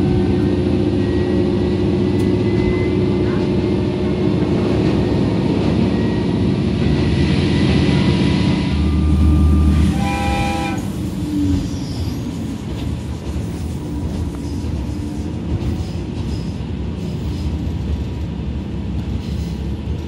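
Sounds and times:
train engine and wheels rumbling: 0:00.0 - 0:20.0
train horn blast: 0:08.6 - 0:11.0.

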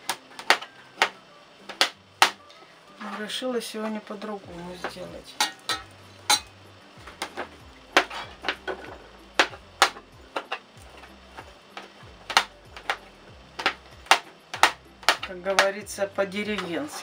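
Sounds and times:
knife chopping on plastic board: 0:13.6 - 0:15.7.

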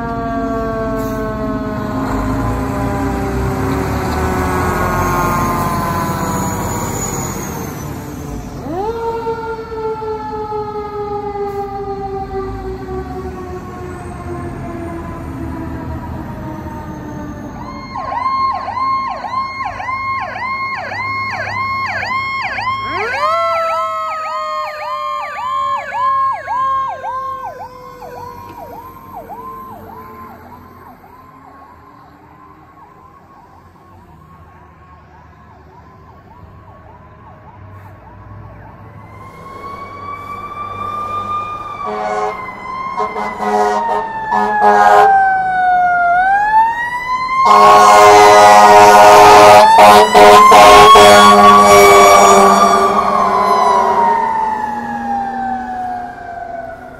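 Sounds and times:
wailing siren: 0:00.0 - 0:56.9
yelping siren: 0:00.0 - 0:56.9
fire engine horn blasts: 0:03.6 - 0:07.2, 0:39.2 - 0:45.4, 0:47.4 - 0:54.6.

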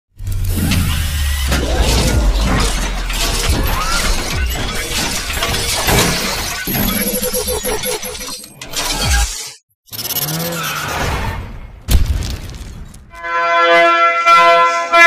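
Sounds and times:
deep bass rumble: 0:00.2 - 0:04.9.

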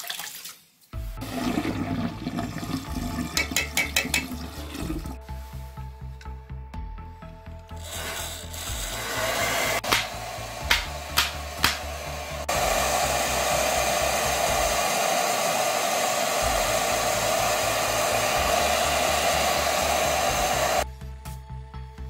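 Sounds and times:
hair dryer blowing: 0:07.8 - 0:20.8.

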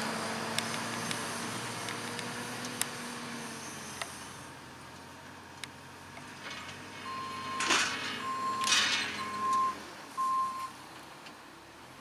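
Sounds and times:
reversing alarm beeping: 0:07.0 - 0:10.7.

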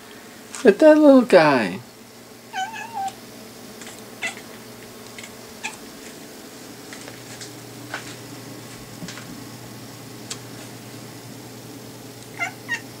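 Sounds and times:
steady low hum: 0:00.0 - 0:13.0
kitten mewing: 0:02.5 - 0:03.2, 0:03.8 - 0:04.6, 0:05.6 - 0:05.9, 0:12.3 - 0:12.9.

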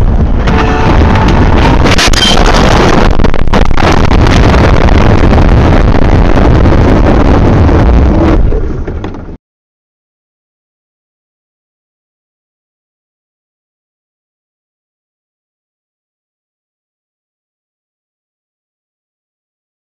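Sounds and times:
loud rumble and rushing: 0:00.0 - 0:09.4
short tone: 0:00.4 - 0:02.8.

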